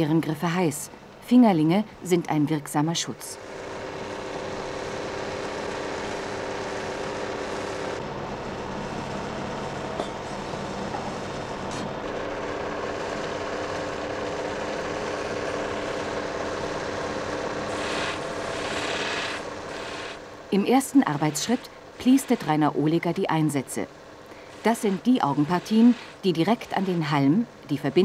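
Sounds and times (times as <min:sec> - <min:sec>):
belt polishing machine motor hum: 0:03.4 - 0:27.1
emery belt running: 0:12.2 - 0:20.2, 0:20.8 - 0:22.7, 0:24.3 - 0:27.1.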